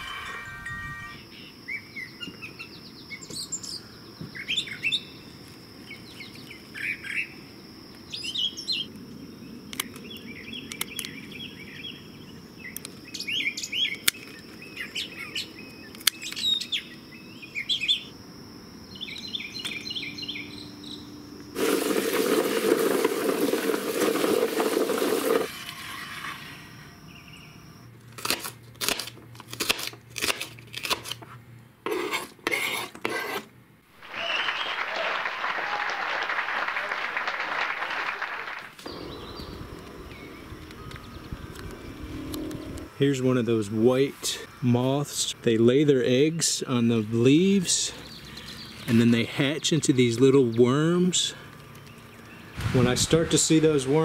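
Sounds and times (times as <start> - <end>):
thin high whine: 0.0 - 1.8, 24.1 - 27.9, 38.8 - 46.0
small birds chirping: 1.2 - 18.2, 18.9 - 21.2, 38.8 - 42.8, 46.2 - 53.2
knife cutting on cutting board: 31.9 - 33.5
loud rushing noise: 52.5 - 54.0.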